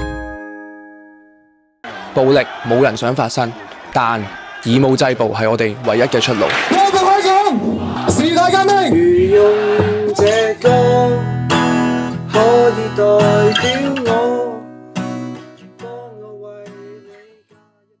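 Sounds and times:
acoustic guitar strumming: 7.8s - 17.6s.

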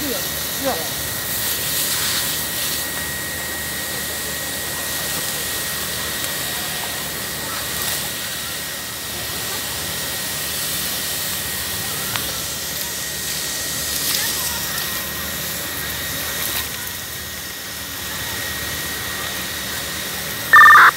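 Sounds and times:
fire hose spraying water: 0.2s - 3.0s, 4.6s - 8.4s, 9.0s - 16.7s.

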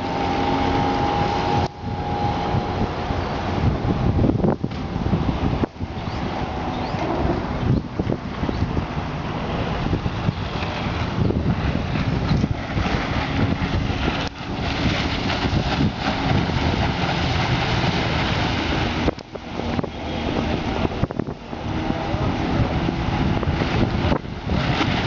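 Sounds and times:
hull spray: 0.0s - 25.0s
outboard motor running: 0.0s - 25.0s
wind noise on microphone: 0.0s - 25.0s.

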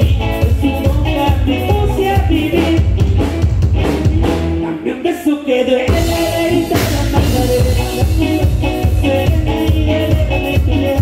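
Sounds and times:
live band playing: 0.0s - 11.0s
person singing: 0.0s - 11.0s.

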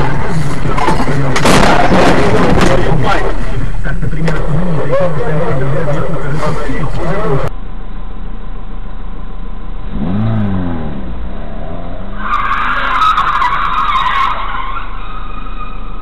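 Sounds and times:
engine revving: 9.8s - 13.0s
car tyres squealing: 9.9s - 16.0s.

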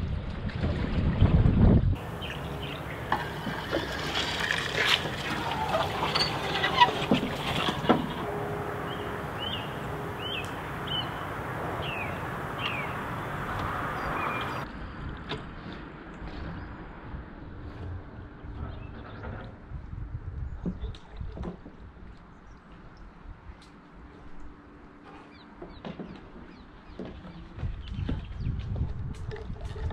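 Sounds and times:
water swirling and dripping: 2.0s - 14.7s
small bird chirping: 8.9s - 13.3s.

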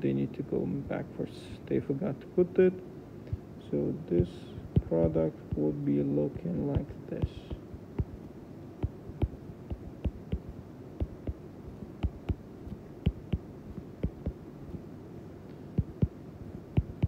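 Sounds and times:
low steady hum: 0.0s - 17.0s
stylus tapping on tablet screen: 6.8s - 8.2s, 8.8s - 14.4s, 15.8s - 16.2s, 16.8s - 17.0s.

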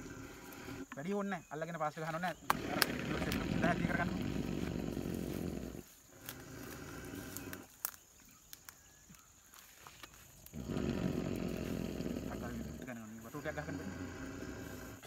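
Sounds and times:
elephant breathing heavily: 0.0s - 1.1s, 2.3s - 7.7s, 10.5s - 15.0s.

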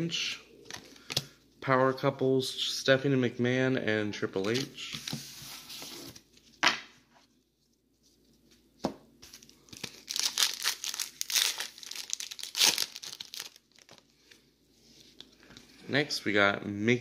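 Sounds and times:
plastic wrapper tearing and crinkling: 9.3s - 14.1s.

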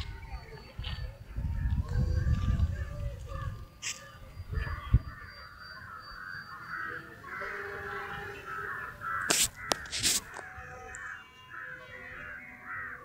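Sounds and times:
flock of birds calling: 0.0s - 13.0s
sharp click: 9.3s - 10.3s.

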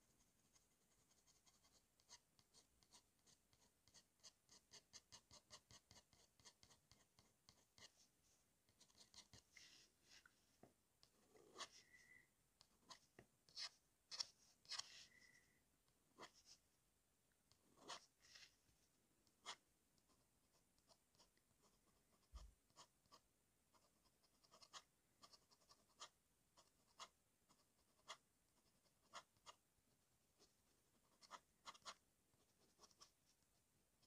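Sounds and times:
pen nib scratching on paper: 0.1s - 8.0s, 8.7s - 10.3s, 11.0s - 15.3s, 16.1s - 16.6s, 17.5s - 18.5s, 19.2s - 29.6s, 30.4s - 33.2s.

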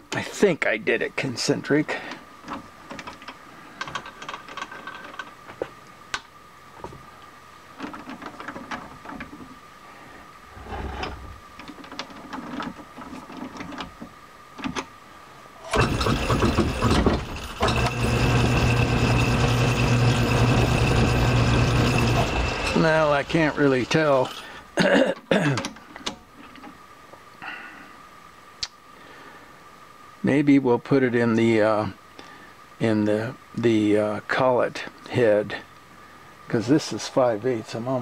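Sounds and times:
lathe motor humming: 15.7s - 24.6s.

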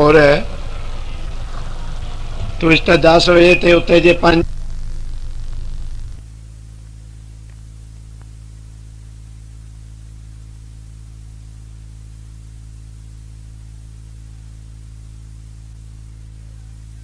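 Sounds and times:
even hiss: 0.0s - 6.2s
low electrical hum: 0.0s - 17.0s.

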